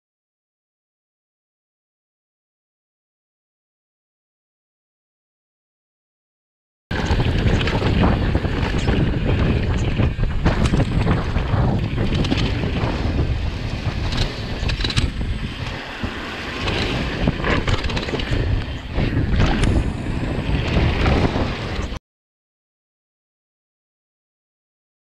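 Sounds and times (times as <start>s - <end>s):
bike rattling: 6.9s - 22.0s
wind buffeting microphone: 6.9s - 22.0s.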